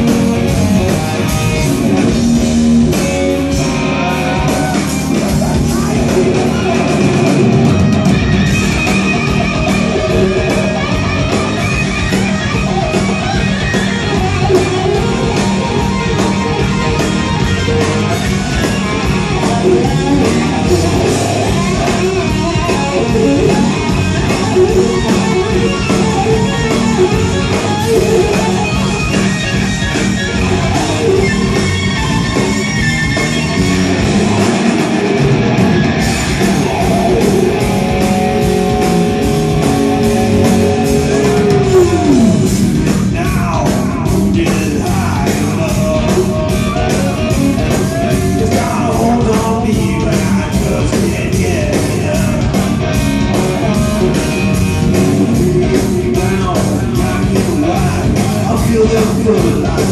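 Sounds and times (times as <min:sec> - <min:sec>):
live rock band playing: 0:00.0 - 0:59.9
electric guitar note sliding down: 0:06.0 - 0:43.0.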